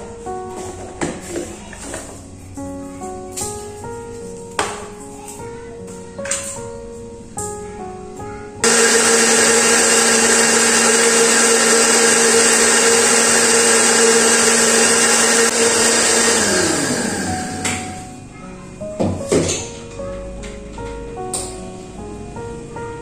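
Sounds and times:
blender motor humming: 8.6s - 18.1s.

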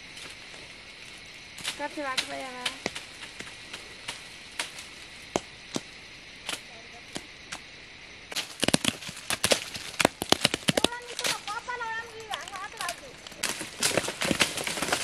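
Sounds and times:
fruit thudding on ground: 8.4s - 11.5s.

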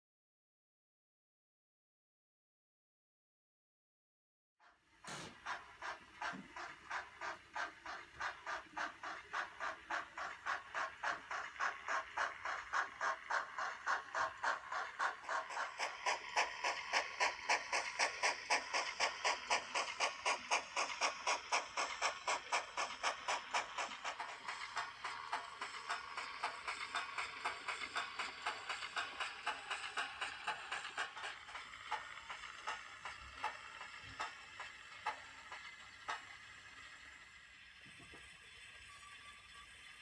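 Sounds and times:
model steam locomotive chuffing: 4.6s - 40.0s.

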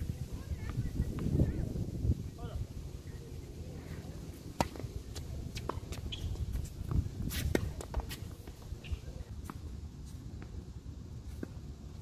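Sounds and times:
tennis ball hit with rackets: 4.5s - 6.3s
tennis ball bouncing on hard court: 4.5s - 9.6s.

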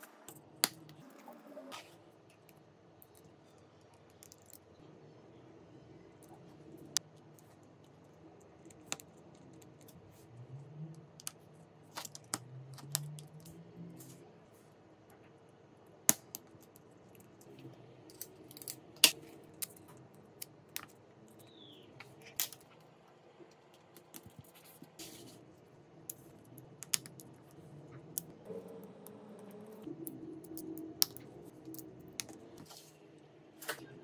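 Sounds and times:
small tools clicking and tapping: 29.0s - 32.4s.

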